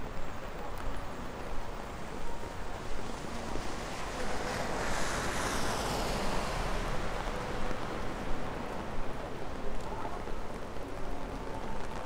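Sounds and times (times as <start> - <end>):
tyres swishing on wet road: 0.0 - 12.0.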